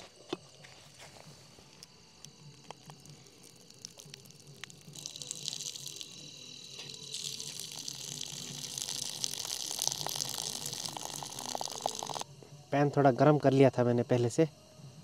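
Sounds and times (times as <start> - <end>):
water pouring onto ground: 3.0 - 6.2, 6.8 - 12.2.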